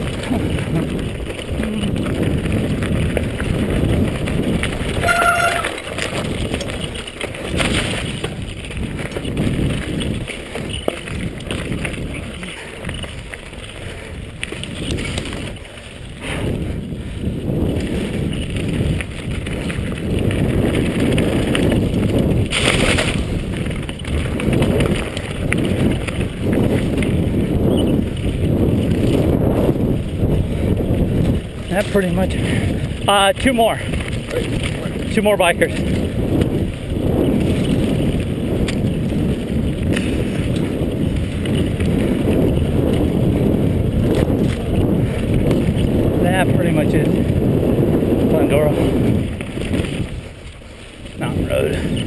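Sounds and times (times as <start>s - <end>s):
bike rattling over dirt trail: 0.0s - 52.0s
short squeal: 5.0s - 5.8s.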